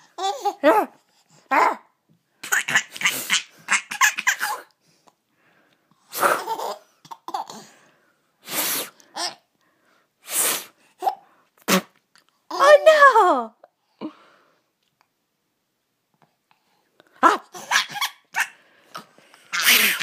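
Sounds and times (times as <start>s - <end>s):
baby giggling: 0.0s - 0.8s, 2.4s - 4.7s, 6.2s - 7.6s, 17.5s - 18.6s, 19.5s - 20.0s.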